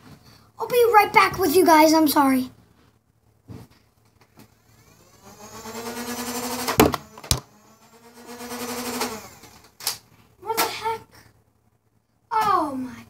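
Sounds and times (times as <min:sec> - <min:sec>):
small electric motor whining: 0:04.2 - 0:10.0
sharp knocks: 0:06.7 - 0:07.4.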